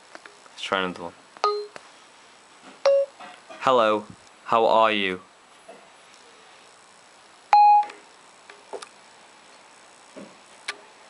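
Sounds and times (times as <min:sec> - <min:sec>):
short phone beep: 0:07.6 - 0:07.9.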